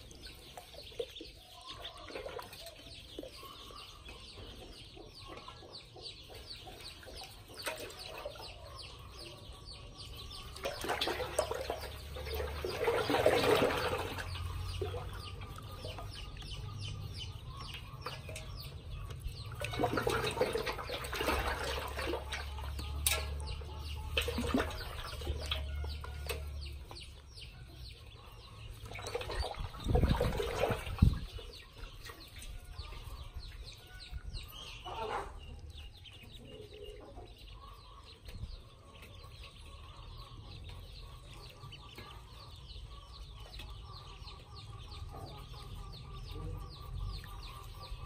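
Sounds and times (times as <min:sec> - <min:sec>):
ducklings peeping: 0:00.0 - 0:48.0
water splashing in metal basin: 0:10.6 - 0:15.3, 0:19.5 - 0:26.5, 0:28.8 - 0:31.4.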